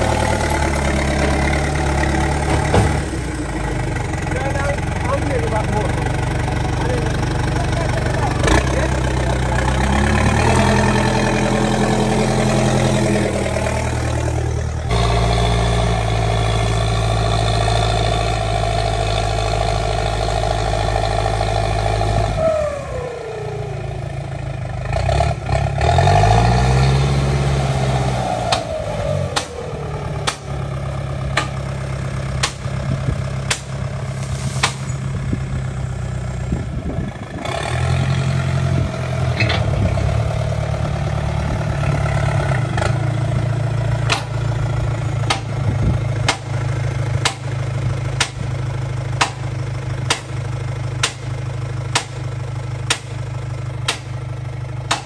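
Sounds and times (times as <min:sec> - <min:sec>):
backhoe diesel engine running: 0:00.0 - 0:55.0
sharp knocks: 0:30.2 - 0:30.5, 0:32.4 - 0:32.7, 0:33.5 - 0:33.8, 0:34.6 - 0:34.9, 0:45.3 - 0:45.5, 0:47.2 - 0:47.5, 0:48.2 - 0:48.4, 0:49.2 - 0:49.4, 0:50.1 - 0:50.4, 0:51.0 - 0:51.3, 0:51.9 - 0:52.2, 0:52.9 - 0:53.2, 0:53.9 - 0:54.1.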